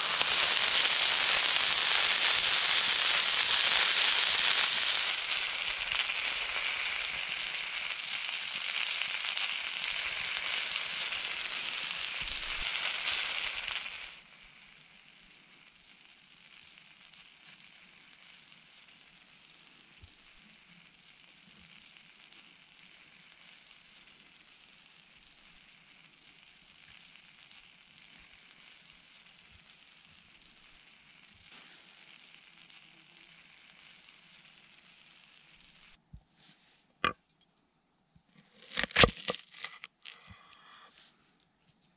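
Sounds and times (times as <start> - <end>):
meat sizzling on griddle: 0.0 - 36.0, 38.6 - 40.2
faint steady hiss: 0.0 - 37.2.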